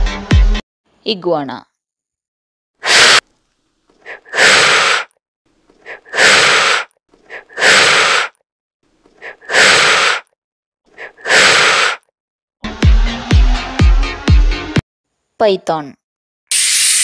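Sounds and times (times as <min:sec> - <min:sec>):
iguana blowing breathy blasts: 0:02.8 - 0:03.2, 0:03.9 - 0:08.4, 0:09.1 - 0:12.1.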